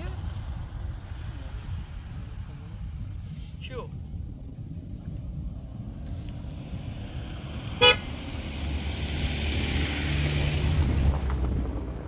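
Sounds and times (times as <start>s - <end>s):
engine rumble: 0.0s - 12.0s
vehicle horn toot: 7.8s - 8.1s.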